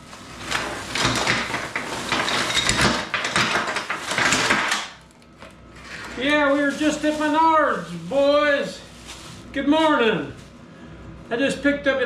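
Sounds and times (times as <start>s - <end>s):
small hard objects clattering: 0.3s - 5.0s.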